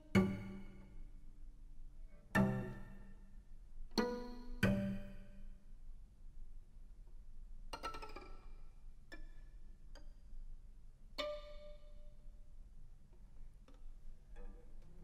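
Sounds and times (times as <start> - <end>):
string quartet plucking notes: 0.0 - 1.1, 2.2 - 3.1, 4.0 - 5.2.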